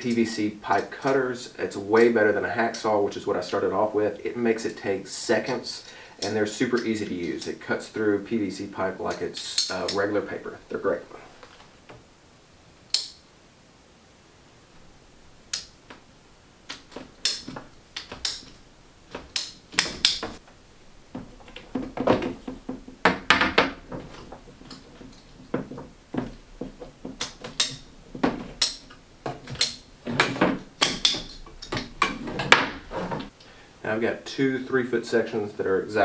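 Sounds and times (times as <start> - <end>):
pipe cutter clicking: 12.9 - 13.2, 16.7 - 20.4, 27.2 - 32.6
plastic pipes knocking on wood: 21.1 - 33.2.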